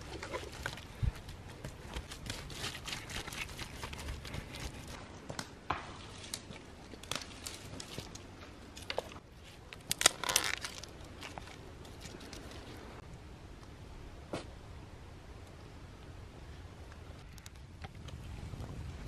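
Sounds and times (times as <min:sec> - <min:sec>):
twigs snapping: 0:05.3 - 0:09.1, 0:09.7 - 0:12.6.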